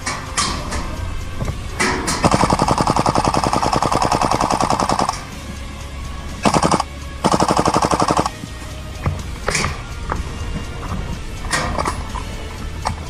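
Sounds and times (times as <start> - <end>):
airsoft gun firing full auto: 2.2 - 5.2, 6.4 - 8.3.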